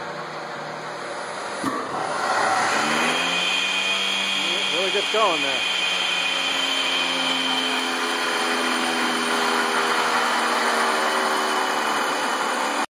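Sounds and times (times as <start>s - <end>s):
electric motor whining: 1.6s - 12.9s.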